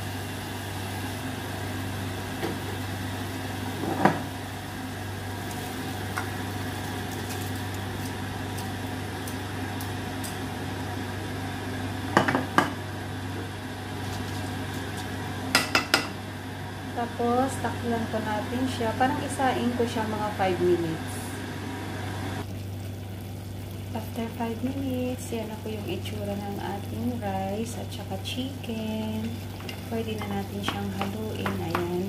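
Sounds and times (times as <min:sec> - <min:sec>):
food sizzling in a pot: 0:00.0 - 0:32.0
wooden spatula knocking pot: 0:29.6 - 0:32.0.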